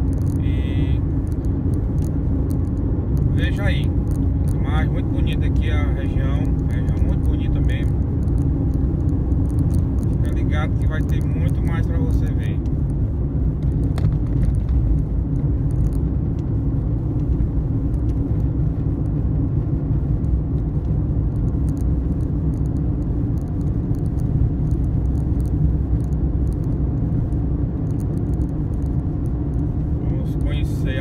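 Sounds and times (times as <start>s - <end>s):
vehicle road and engine rumble: 0.0s - 31.0s.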